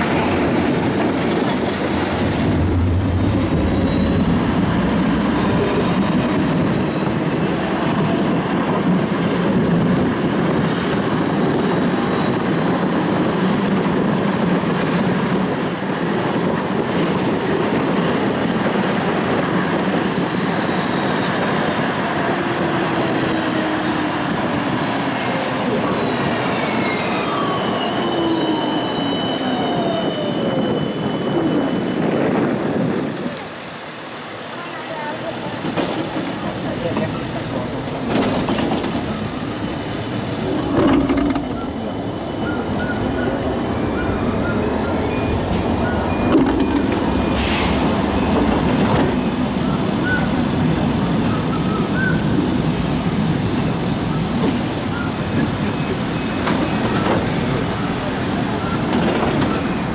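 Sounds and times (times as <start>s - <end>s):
tram rumbling on rails: 0.0s - 59.9s
high wheel squeal: 1.5s - 11.6s, 20.9s - 34.1s, 38.6s - 52.6s, 54.1s - 59.9s.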